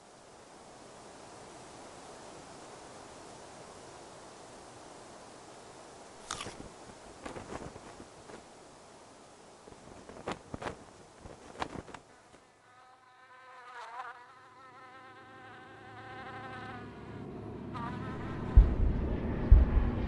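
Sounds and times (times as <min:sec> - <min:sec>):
faint clicks and rustles: 0:06.2 - 0:08.6, 0:09.6 - 0:12.5
fly buzzing: 0:10.1 - 0:18.8
low drone: 0:16.8 - 0:20.0.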